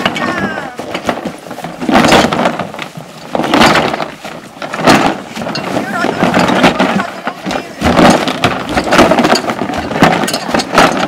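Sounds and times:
cardboard boxes thudding on grass: 0.0s - 11.0s.

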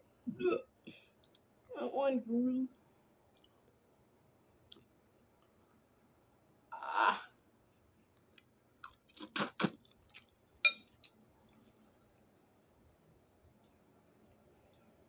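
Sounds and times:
wet chewing clicks: 3.2s - 3.8s, 8.2s - 12.5s, 13.4s - 15.0s
person slurping noodles: 9.1s - 9.8s.

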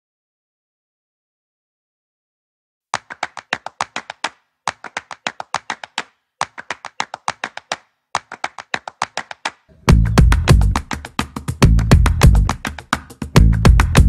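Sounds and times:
sharp percussive taps: 3.0s - 14.0s.

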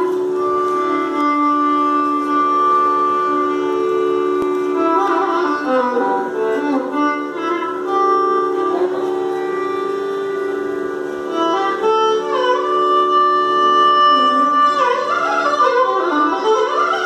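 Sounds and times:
violins playing in unison: 0.0s - 17.0s.

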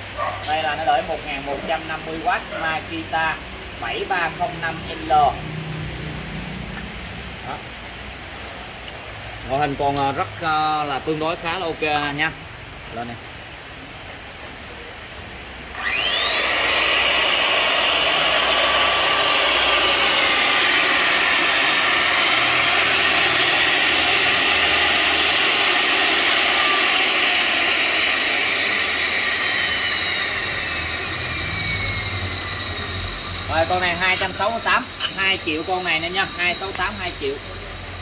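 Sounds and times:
electric motor whining: 15.7s - 38.0s.

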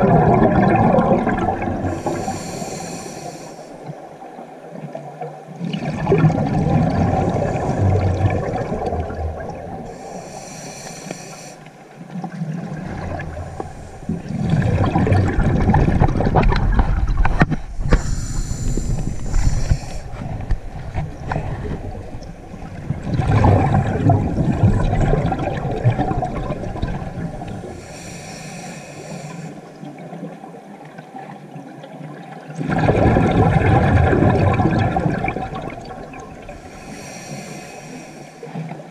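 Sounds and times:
exhaled bubbles rumbling underwater: 0.0s - 38.9s
regulator inhale hiss: 1.9s - 3.9s, 9.9s - 11.8s, 13.3s - 14.2s, 17.8s - 20.2s, 27.5s - 29.7s, 36.5s - 38.8s.

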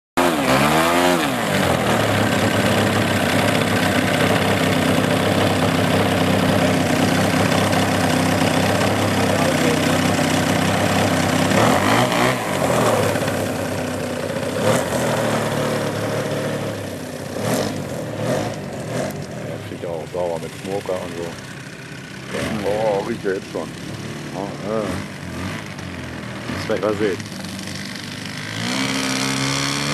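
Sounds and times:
model plane engine revving and idling: 0.2s - 29.9s.

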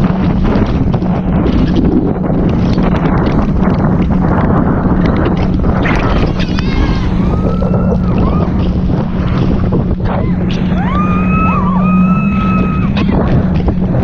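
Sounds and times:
boat engine hum: 0.0s - 14.0s
water rushing and splashing: 0.0s - 14.0s
wind buffeting microphone: 0.0s - 14.0s
high cry: 10.2s - 13.1s.

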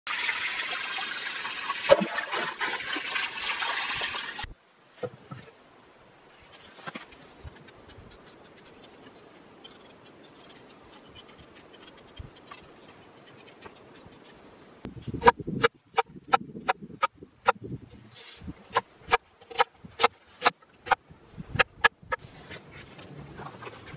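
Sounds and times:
water trickling and splashing: 0.1s - 4.6s.

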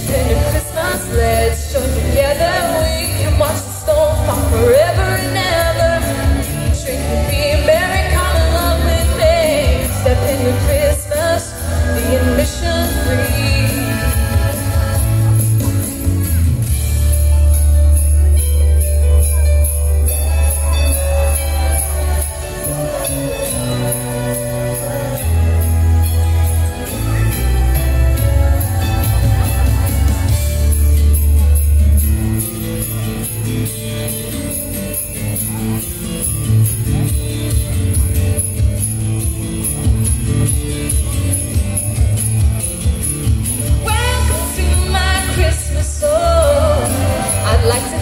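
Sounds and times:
woman singing pop song: 0.0s - 16.2s, 43.7s - 48.0s
backing track with jingle bells: 0.0s - 48.0s.

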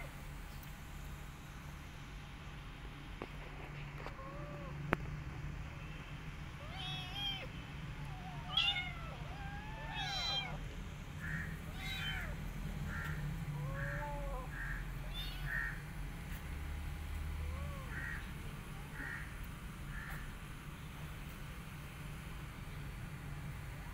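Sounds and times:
kittens mewing: 3.9s - 4.9s, 6.6s - 10.6s, 11.2s - 15.9s, 17.4s - 18.3s.

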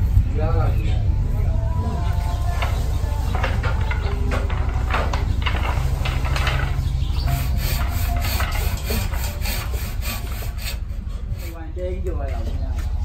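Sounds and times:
steady low hum: 0.0s - 13.0s
hand tool rasping wood: 2.1s - 11.8s.

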